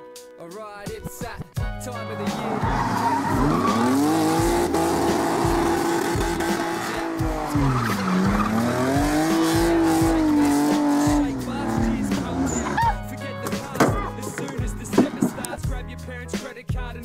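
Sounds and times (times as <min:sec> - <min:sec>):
tyres squealing: 0:02.1 - 0:15.6
car engine revving high: 0:02.2 - 0:13.0.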